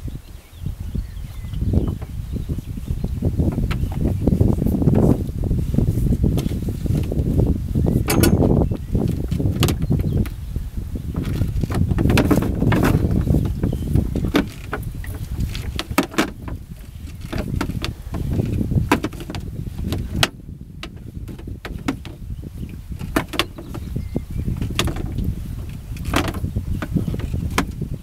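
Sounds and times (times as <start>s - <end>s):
net and hoops clicking and knocking: 8.0s - 10.4s.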